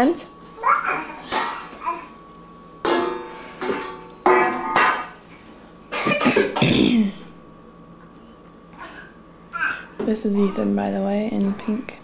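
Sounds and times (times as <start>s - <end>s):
metal pots and pans clanging: 1.2s - 1.7s, 2.8s - 5.2s.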